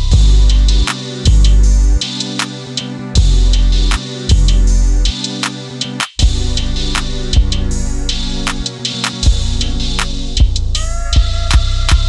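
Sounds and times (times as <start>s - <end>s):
music with drum beat: 0.0s - 12.0s.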